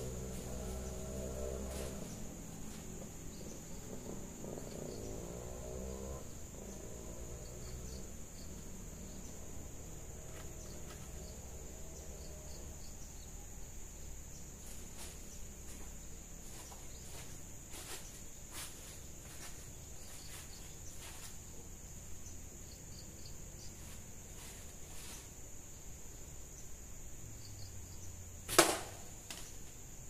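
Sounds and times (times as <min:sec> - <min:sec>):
insects chirring: 0:00.0 - 0:30.0
footsteps on dry leaves: 0:00.2 - 0:03.0, 0:14.6 - 0:21.6.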